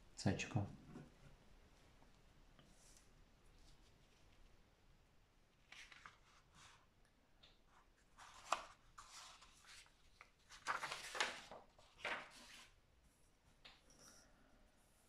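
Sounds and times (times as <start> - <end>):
paper pages rustling: 5.6 - 6.8, 8.0 - 12.8.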